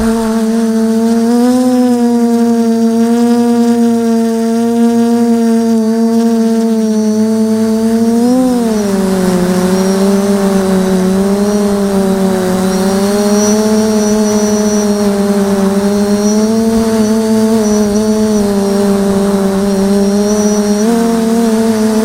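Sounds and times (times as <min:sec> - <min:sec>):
quadcopter propellers humming: 0:00.0 - 0:22.0.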